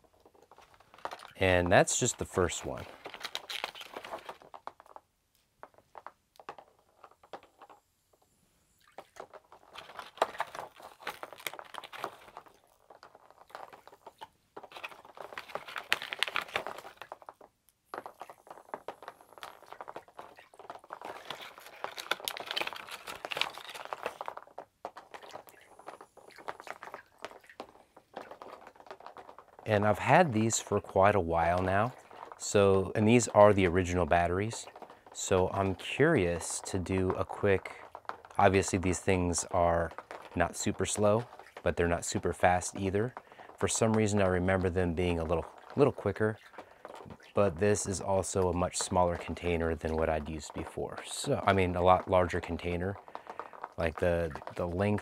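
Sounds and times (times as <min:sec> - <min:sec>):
plastic toys crackling and clicking: 0:00.0 - 0:08.2, 0:08.8 - 0:55.0
water splashing: 0:25.0 - 0:55.0.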